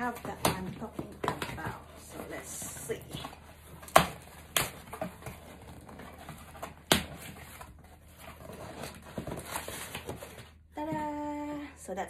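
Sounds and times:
cardboard flaps rustling: 0:00.0 - 0:11.0
tape and cardboard snapping: 0:03.8 - 0:07.7.

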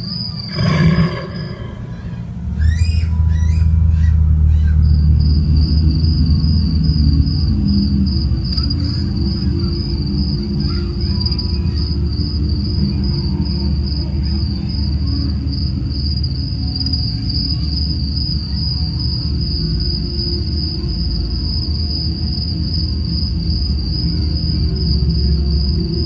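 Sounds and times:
low rumbling drone: 0:00.0 - 0:16.9
crickets trilling: 0:00.0 - 0:26.0.

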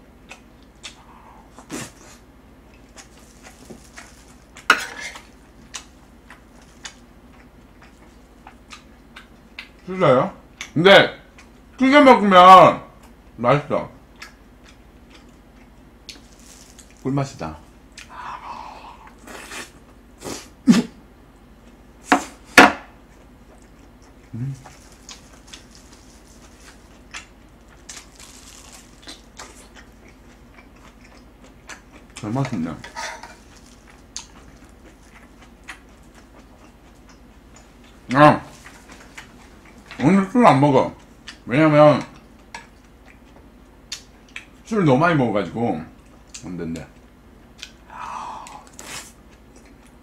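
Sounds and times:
person chewing and smacking: 0:00.2 - 0:02.1, 0:02.7 - 0:09.9, 0:14.1 - 0:17.0, 0:17.9 - 0:18.1, 0:23.1 - 0:40.1, 0:40.9 - 0:44.6, 0:46.0 - 0:50.0.

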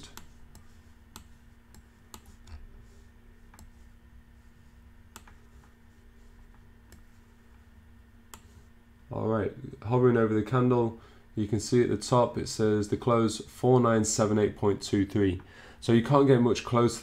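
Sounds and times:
low steady hum: 0:00.0 - 0:17.0
computer mouse clicks: 0:00.1 - 0:02.6, 0:03.5 - 0:03.8, 0:05.1 - 0:05.7, 0:06.5 - 0:07.1, 0:08.3 - 0:08.6.

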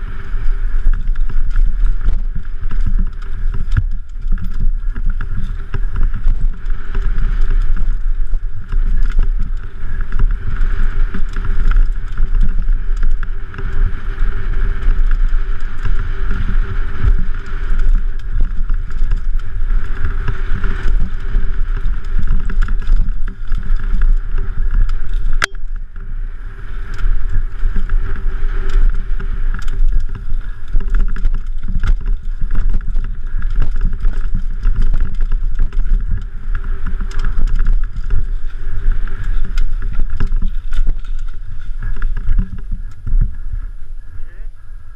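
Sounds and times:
bike rattling over dirt trail: 0:00.0 - 0:44.9.

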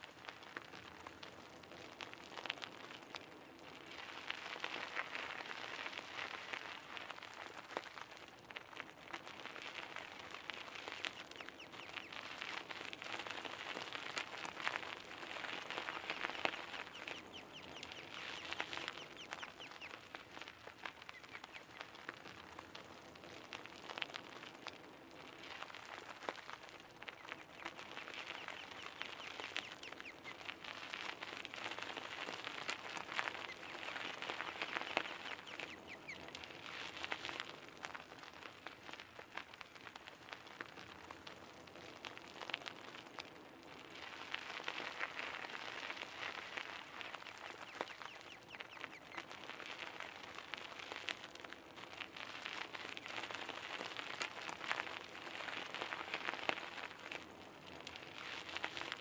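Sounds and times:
bicycle tyres crunching gravel: 0:00.0 - 0:59.0.

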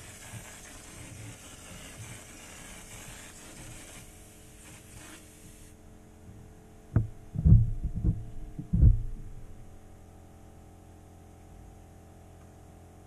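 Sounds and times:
steady low hum: 0:04.1 - 0:13.0
dull low thumps: 0:06.3 - 0:10.1.

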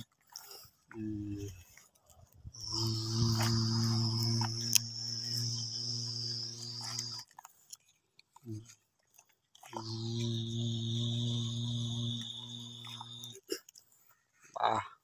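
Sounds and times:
low drone with high hiss: 0:02.6 - 0:07.2, 0:09.8 - 0:13.4
sharp clicks: 0:02.6 - 0:07.3.

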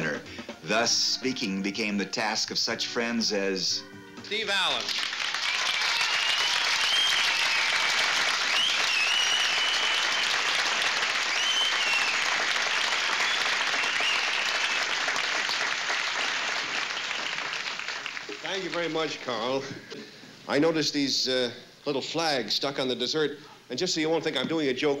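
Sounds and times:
audience applauding: 0:04.4 - 0:19.6.

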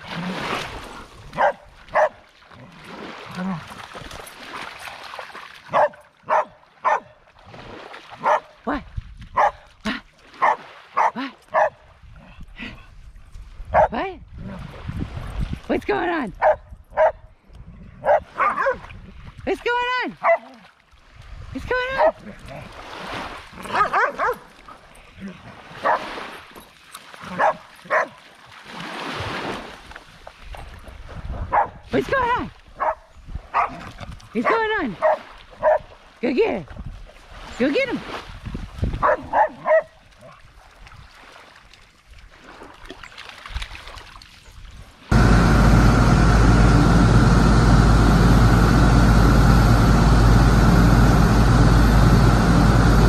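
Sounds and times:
dog barking: 0:01.4 - 0:02.2, 0:05.7 - 0:07.2, 0:08.2 - 0:08.5, 0:09.4 - 0:09.6, 0:10.4 - 0:11.8, 0:13.7 - 0:14.0, 0:16.4 - 0:17.2, 0:18.0 - 0:18.8, 0:20.2 - 0:20.5, 0:22.0 - 0:22.2, 0:23.7 - 0:24.5, 0:25.8 - 0:26.1, 0:27.3 - 0:28.2, 0:31.5 - 0:31.8, 0:32.8 - 0:33.8, 0:34.4 - 0:35.9, 0:39.0 - 0:40.0.

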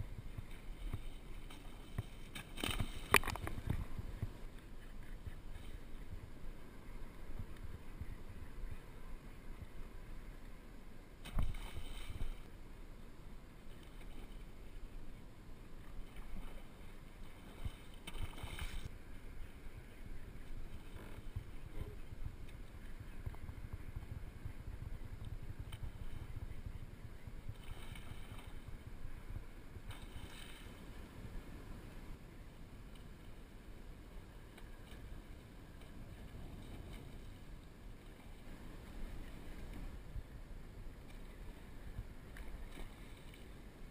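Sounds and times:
water lapping against kayak hull: 0:00.0 - 0:09.0, 0:13.6 - 0:32.1.

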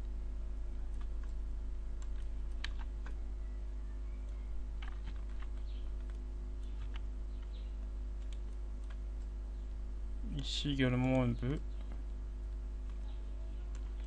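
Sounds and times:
low electrical hum: 0:00.0 - 0:14.0
keyboard and mouse clicking: 0:00.9 - 0:01.4, 0:02.0 - 0:03.2, 0:04.2 - 0:09.3, 0:12.8 - 0:14.0.

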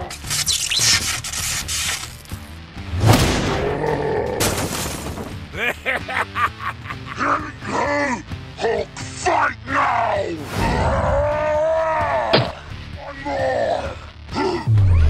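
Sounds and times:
background music: 0:00.0 - 0:15.0
cartoon crash and impact hits: 0:02.9 - 0:03.7
bending vocal cries: 0:10.6 - 0:15.0.

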